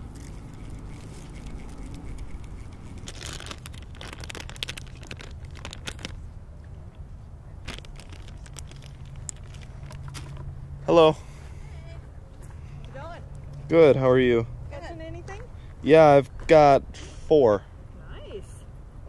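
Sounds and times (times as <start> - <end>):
plastic bag crinkling: 0.0 - 6.2, 7.6 - 10.4.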